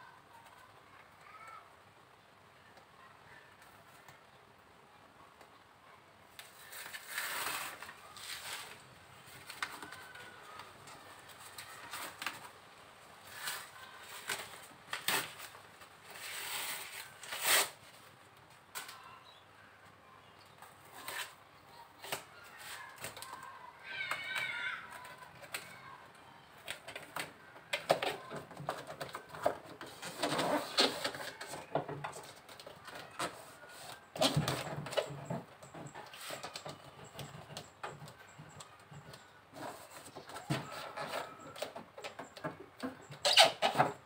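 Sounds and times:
foil insulation mat rustling: 0:06.4 - 0:10.2, 0:13.2 - 0:18.0.

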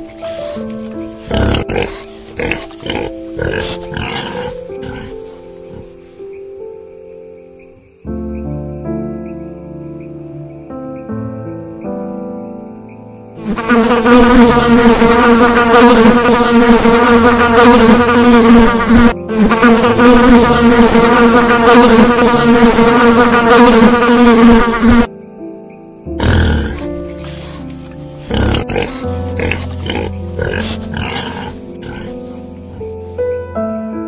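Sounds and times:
insect wings buzzing: 0:00.0 - 0:06.7, 0:13.3 - 0:25.1, 0:26.1 - 0:33.5
soft background music: 0:00.0 - 0:34.0.

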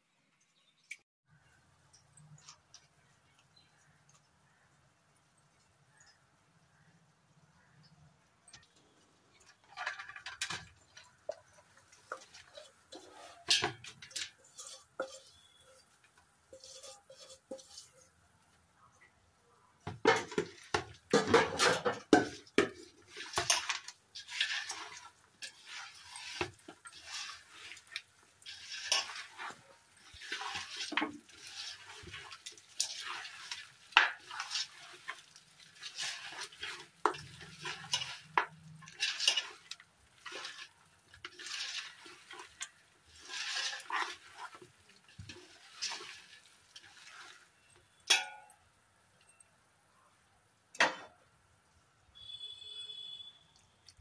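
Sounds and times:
wet rustling of mixture: 0:01.3 - 0:48.1
bangles clinking against metal pot: 0:08.5 - 0:18.1, 0:47.9 - 0:48.6.

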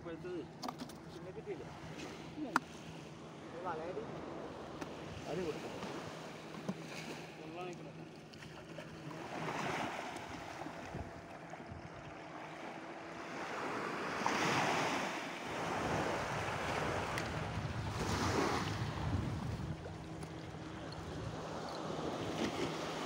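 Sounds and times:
small waves washing on sand: 0:01.2 - 0:23.0
wind buffeting the microphone: 0:10.2 - 0:12.1, 0:15.6 - 0:23.0.

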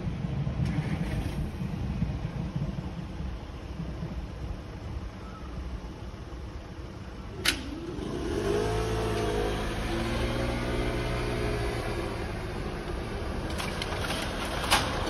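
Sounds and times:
cars driving slowly past: 0:00.0 - 0:15.0
moped engine revving: 0:07.3 - 0:15.0.

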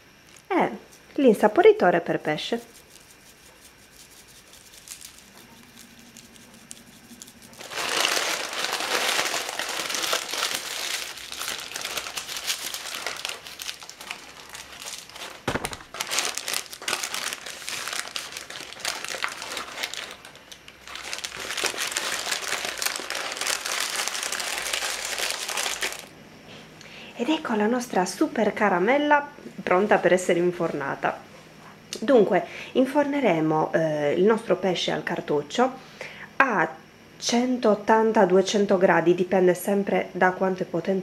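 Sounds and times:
baking paper crinkling: 0:02.6 - 0:26.1.

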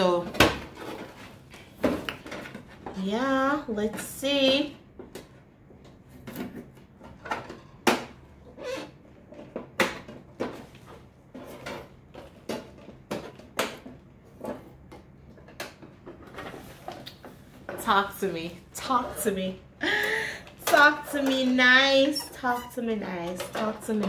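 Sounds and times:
plastic parts clicking and knocking: 0:11.4 - 0:17.3.

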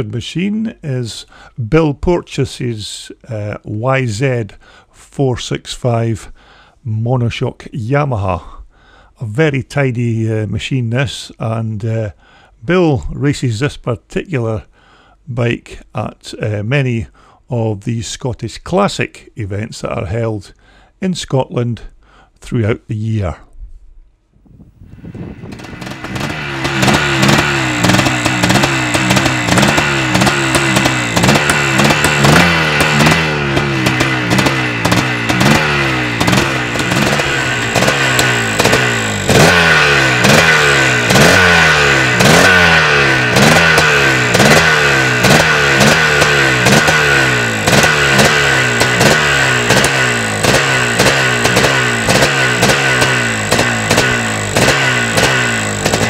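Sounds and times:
motocross engine revving: 0:25.0 - 0:56.0.

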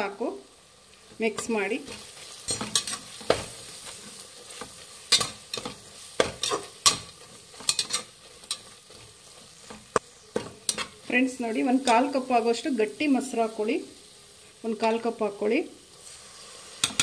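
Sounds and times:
oil sizzling: 0:00.0 - 0:17.0
spatula scraping a metal pot: 0:01.4 - 0:11.0.

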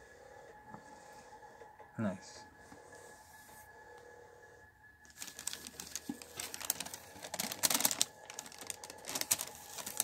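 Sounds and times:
tissue paper crinkling and rustling: 0:05.1 - 0:10.0.

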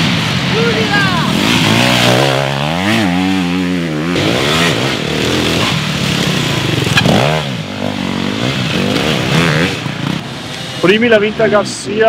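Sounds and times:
motorcycle engine revving: 0:00.0 - 0:11.7.

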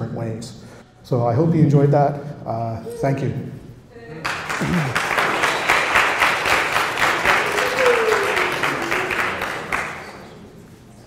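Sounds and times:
audience applauding: 0:04.2 - 0:10.6.

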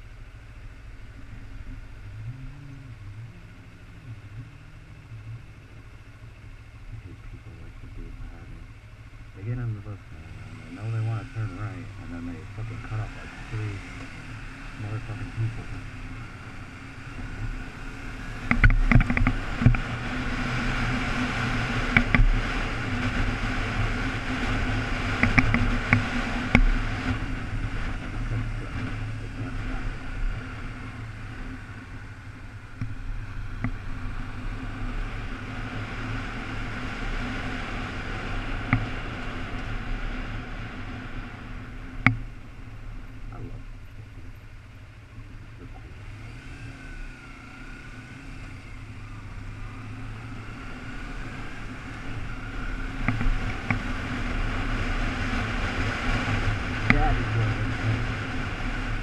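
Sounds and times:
motorcycle engine running: 0:00.0 - 0:59.0
wind noise: 0:10.8 - 0:44.7.

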